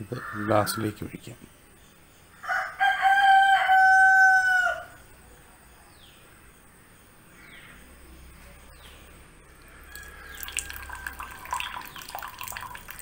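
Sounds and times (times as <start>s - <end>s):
rooster crowing: 2.4s - 5.0s, 9.6s - 11.8s.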